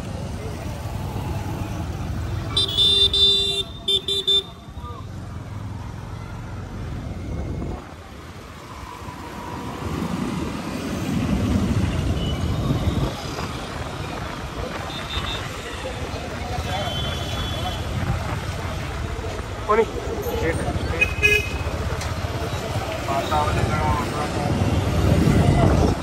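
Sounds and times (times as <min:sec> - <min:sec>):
road traffic rumble: 0:00.0 - 0:26.0
vehicle horn honking: 0:02.5 - 0:04.5.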